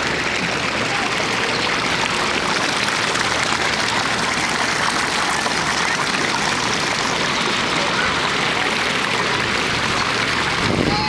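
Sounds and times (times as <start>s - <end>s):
rush of moving water: 0.0s - 11.0s.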